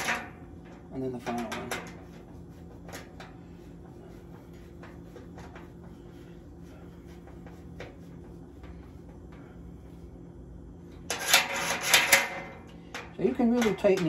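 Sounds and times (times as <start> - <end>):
steady low hum: 0.0 - 14.0
metal clicks and scrapes: 11.0 - 14.0.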